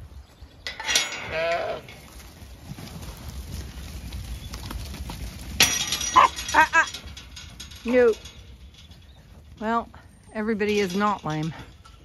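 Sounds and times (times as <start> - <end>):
sheep hooves scuffling: 0.0 - 12.0
sharp clatter: 5.0 - 9.2.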